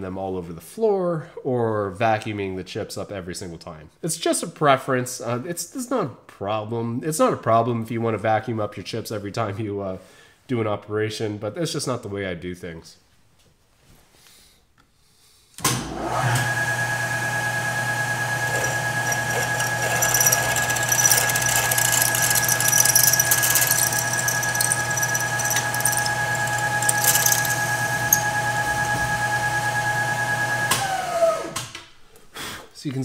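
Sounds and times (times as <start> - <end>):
drill whining cutting metal: 18.4 - 28.4.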